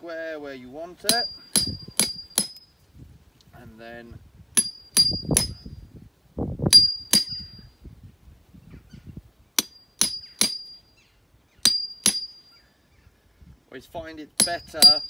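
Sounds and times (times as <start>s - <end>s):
hammer striking steel chisel: 1.1s - 2.6s, 4.6s - 5.7s, 6.7s - 7.5s, 9.6s - 10.8s, 11.6s - 12.4s, 14.4s - 15.0s.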